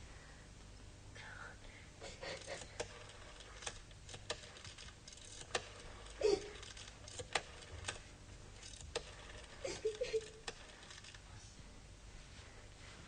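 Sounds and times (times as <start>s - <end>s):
telephone dial clicks: 2.5s - 8.0s, 8.6s - 11.2s.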